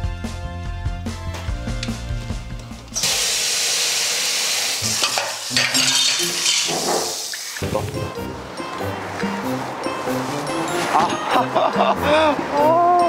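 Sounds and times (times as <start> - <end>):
background music: 0.0 - 3.0, 7.6 - 13.0
loud steady hiss: 3.0 - 7.6.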